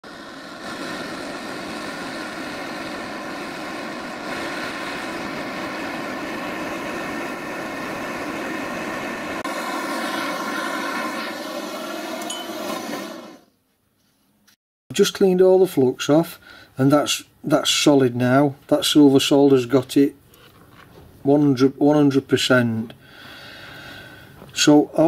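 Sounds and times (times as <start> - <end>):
gas blowtorch flame burning: 0.0 - 13.5.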